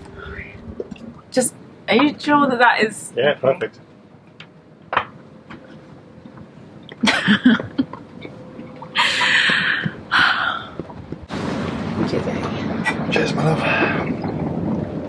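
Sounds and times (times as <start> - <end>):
woman laughing breathily: 9.0 - 9.9.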